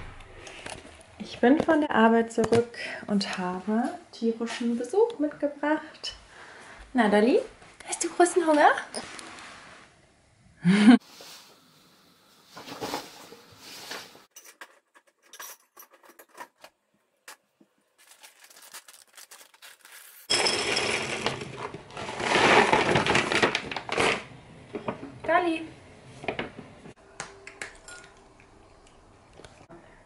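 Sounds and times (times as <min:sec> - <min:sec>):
paper bag rustling: 0:18.0 - 0:24.3.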